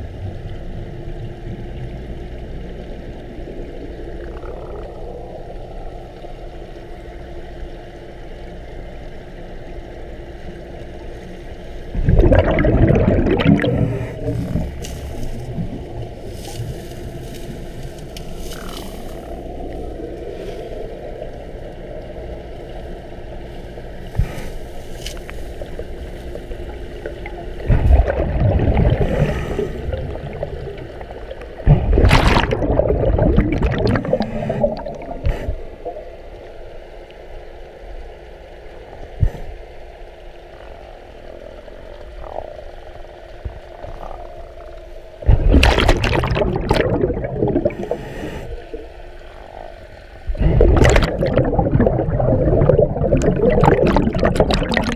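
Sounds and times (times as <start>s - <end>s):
underwater low hum: 0.0s - 54.9s
gurgling exhaled bubbles: 3.4s - 6.5s, 11.9s - 22.3s, 25.2s - 36.4s, 40.7s - 54.9s.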